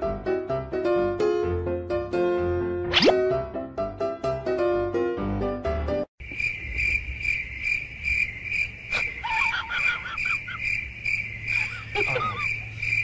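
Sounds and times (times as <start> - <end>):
cricket chirping: 6.2 - 13.0.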